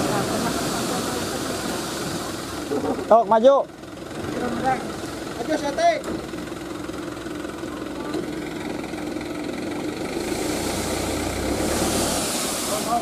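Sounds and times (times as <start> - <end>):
rushing hiss: 0.0 - 2.7, 10.2 - 13.0
dump truck engine running: 0.0 - 13.0
sand sliding out: 10.2 - 13.0.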